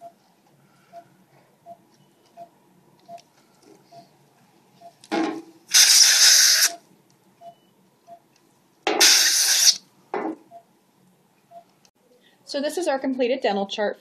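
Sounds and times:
compressed air syringe hissing: 0:05.7 - 0:06.8, 0:09.0 - 0:09.8.

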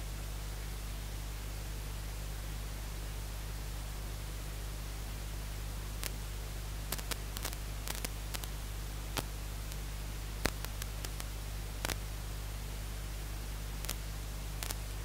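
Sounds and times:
static hiss: 0:05.5 - 0:15.0
faint irregular clicks: 0:06.9 - 0:08.6, 0:10.4 - 0:12.0, 0:14.6 - 0:15.0.

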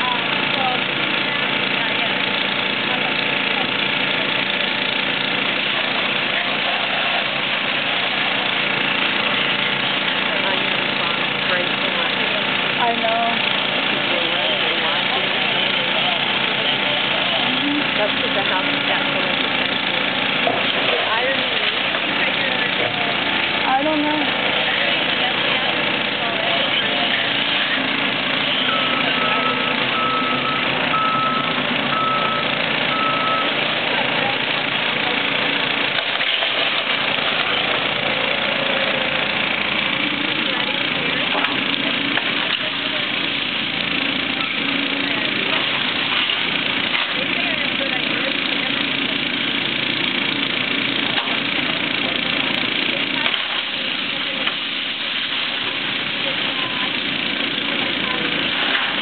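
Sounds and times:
excavator diesel engine: 0:00.0 - 0:59.0
backup alarm beeping: 0:28.6 - 0:33.5
boards splintering: 0:35.0 - 0:40.3, 0:41.0 - 0:50.2, 0:51.0 - 0:59.0.

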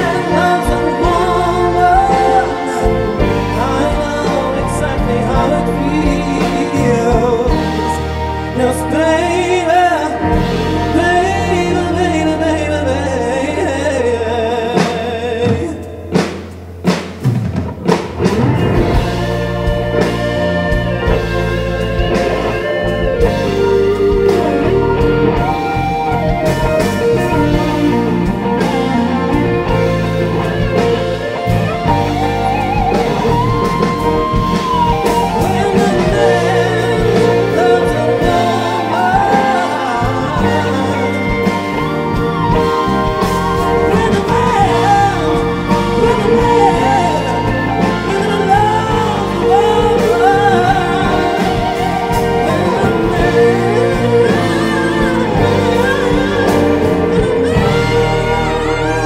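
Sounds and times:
person singing: 0:00.0 - 0:16.4, 0:18.3 - 0:59.0
orchestra playing film music: 0:00.0 - 0:59.0.

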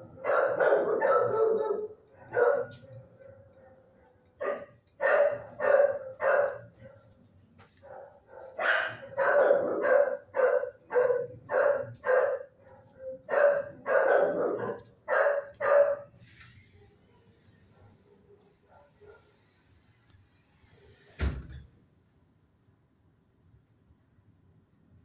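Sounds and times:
dogs barking: 0:00.0 - 0:16.2, 0:17.7 - 0:19.4.

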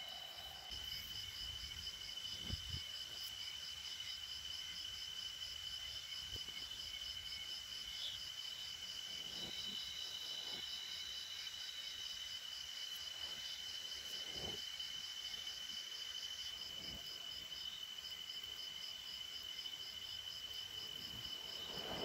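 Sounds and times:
insect pulsing call: 0:00.0 - 0:22.0
insect steady high trill: 0:00.0 - 0:22.0
burning fibre crackles: 0:07.8 - 0:11.5, 0:12.9 - 0:15.4, 0:20.5 - 0:22.0.

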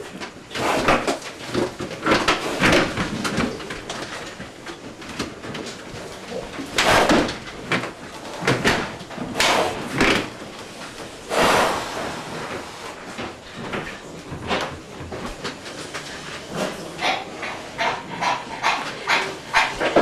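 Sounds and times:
pig shed din: 0:00.0 - 0:20.0.

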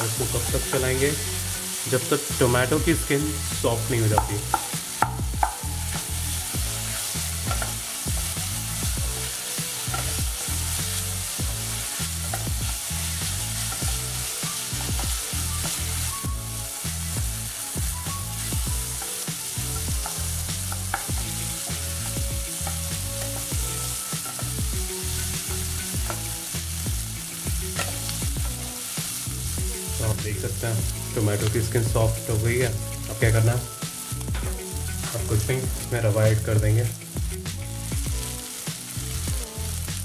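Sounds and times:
vegetables sizzling in a pan: 0:00.0 - 0:40.0
spatula scraping and tapping pan: 0:04.1 - 0:06.1, 0:06.9 - 0:16.0, 0:18.6 - 0:26.3, 0:27.5 - 0:29.2.

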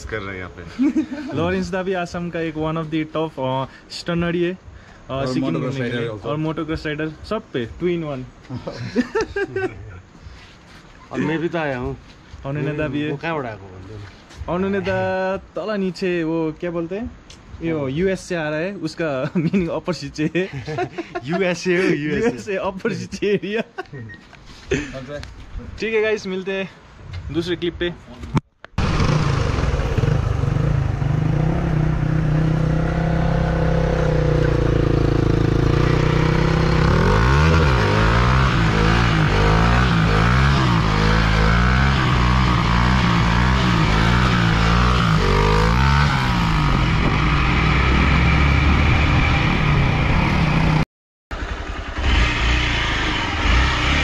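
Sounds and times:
dirt bike engines revving: 0:28.8 - 0:50.8, 0:51.5 - 0:54.0.

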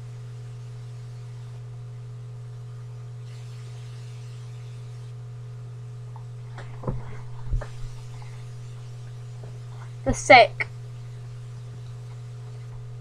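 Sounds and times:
low electrical hum: 0:00.0 - 0:13.0.

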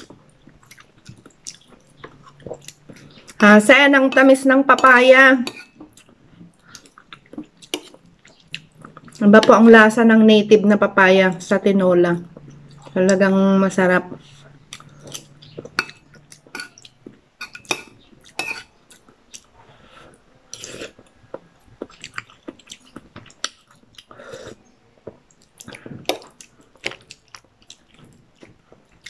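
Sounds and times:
person chewing: 0:00.0 - 0:03.4, 0:05.5 - 0:09.2, 0:14.3 - 0:19.9, 0:20.5 - 0:29.0.

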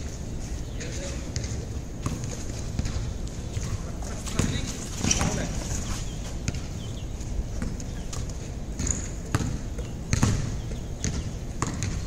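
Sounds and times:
basketball bouncing on concrete: 0:01.3 - 0:05.5, 0:06.4 - 0:06.7, 0:07.6 - 0:12.0.

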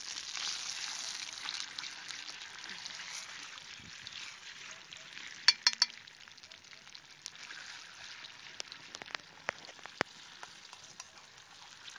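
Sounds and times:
soft steady sizzle: 0:00.0 - 0:11.9
spoon clinking metal pot: 0:05.5 - 0:06.0
spoon ticks: 0:05.5 - 0:06.0.

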